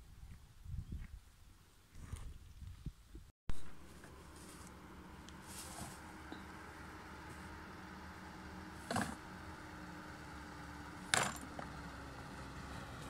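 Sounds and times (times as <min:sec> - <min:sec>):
plastic bag rustling: 0:05.4 - 0:06.2.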